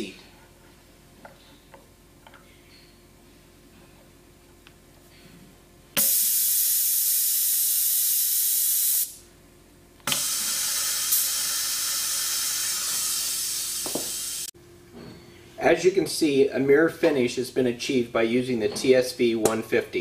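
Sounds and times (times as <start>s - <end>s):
compressed air hissing: 6.0s - 9.2s, 10.1s - 14.5s
valve click: 6.0s - 9.2s, 10.0s - 14.4s.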